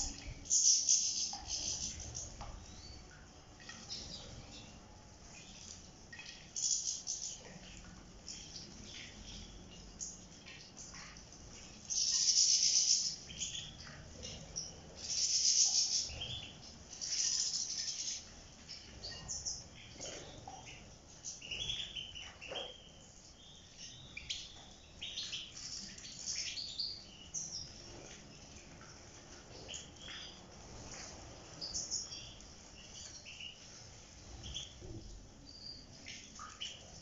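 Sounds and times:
birds chirping: 0.0s - 37.0s.

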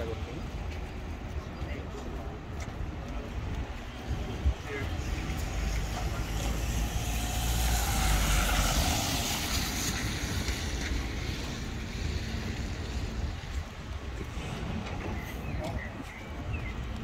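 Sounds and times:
vehicle passing on wet street: 3.9s - 14.9s.

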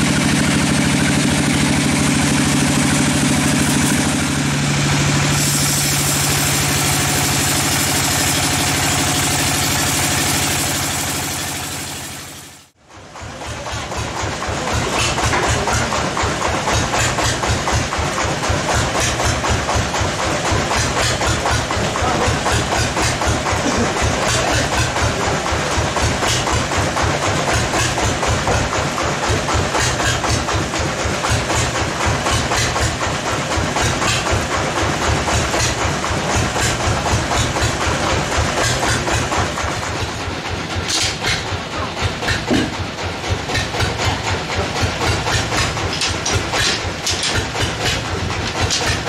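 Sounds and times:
sawmill machinery pulsing: 0.0s - 49.0s.

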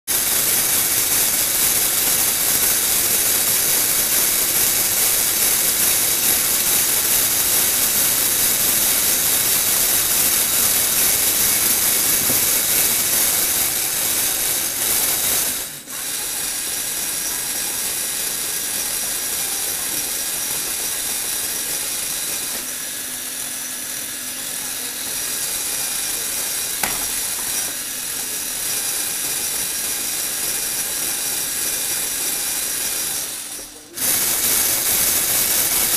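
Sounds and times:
toy car motor whirring: 0.1s - 35.9s.

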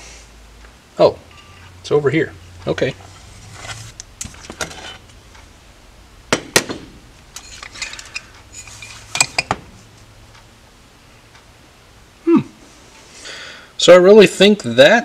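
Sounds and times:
metal parts clinking on workbench: 7.4s - 9.5s.

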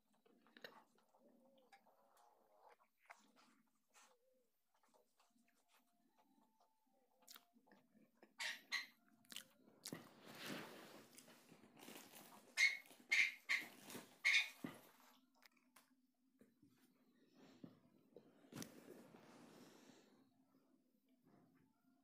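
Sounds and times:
fabric rustling and swishing: 10.2s - 11.1s.

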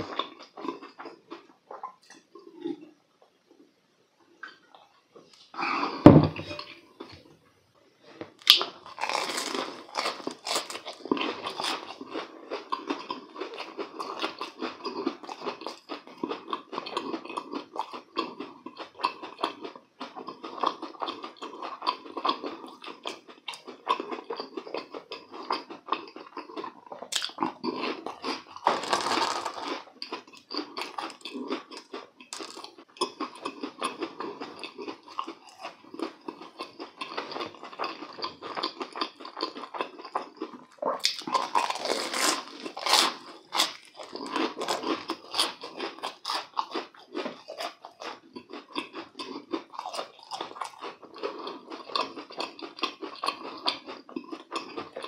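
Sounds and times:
crunchy food chewing: 0.0s - 2.9s, 8.4s - 55.0s
thump: 6.0s - 6.5s.

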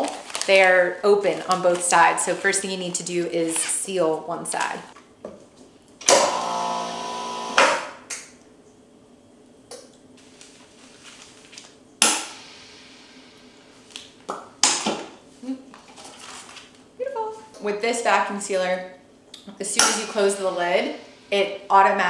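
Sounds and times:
vacuum sealer humming: 6.0s - 7.8s.

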